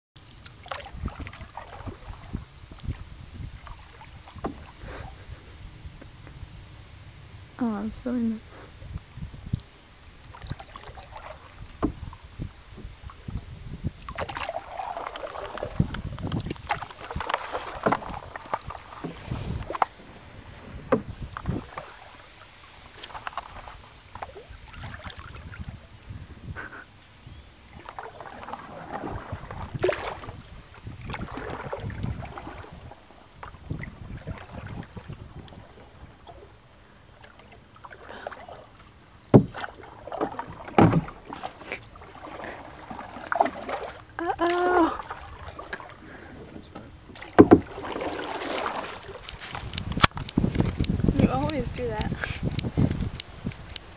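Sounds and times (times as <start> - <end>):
paddle splashing in water: 0.2 - 6.3, 8.5 - 27.0, 27.6 - 53.9
paddle knocking against hull: 0.4 - 3.0, 3.6 - 4.8, 10.3 - 22.2, 27.8 - 30.4, 31.0 - 32.8, 39.3 - 45.9, 46.5 - 52.9
loud knocks: 47.4 - 47.7.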